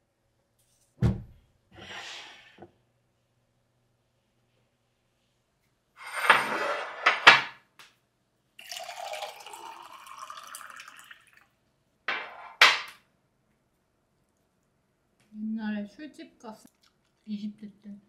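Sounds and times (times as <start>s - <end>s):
tableware clattering on table: 6.0s - 7.6s, 12.1s - 13.0s
water pouring into mug: 8.6s - 11.5s.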